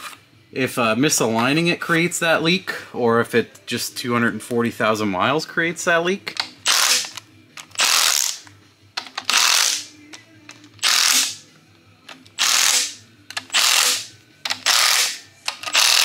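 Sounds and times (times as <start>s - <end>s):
impact wrench hammering: 9.0s - 9.9s, 10.8s - 11.4s, 12.4s - 16.0s.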